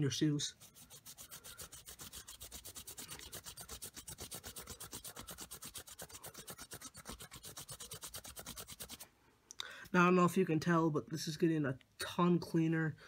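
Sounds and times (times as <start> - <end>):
cotton ball rubbing on sneaker: 0.1 - 9.0.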